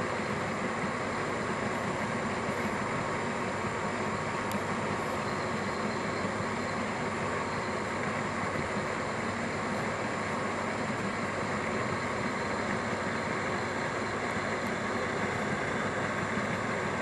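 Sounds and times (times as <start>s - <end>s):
aquarium pumps humming: 0.0s - 17.0s.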